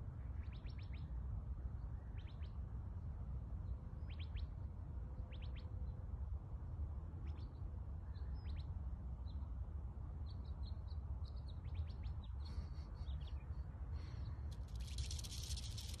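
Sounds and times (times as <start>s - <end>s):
small birds chirping: 10.3s - 16.0s
rattlesnake rattling: 14.5s - 16.0s.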